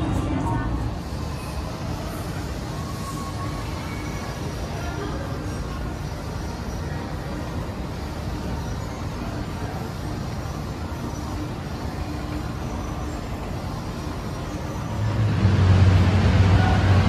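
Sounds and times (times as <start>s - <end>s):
shopping mall background rumble: 0.0s - 17.0s.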